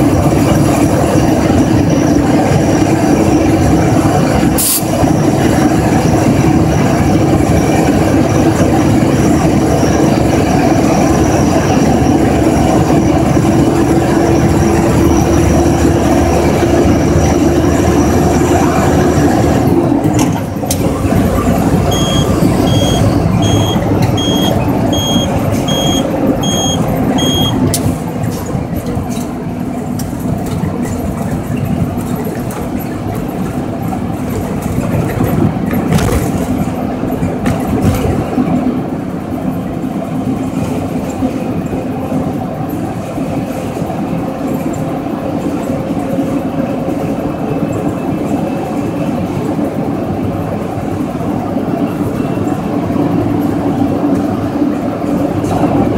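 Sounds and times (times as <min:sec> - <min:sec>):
diesel truck engine droning: 0:00.0 - 0:55.9
road and wind noise: 0:00.0 - 0:55.9
short electronic beeps: 0:21.8 - 0:27.6.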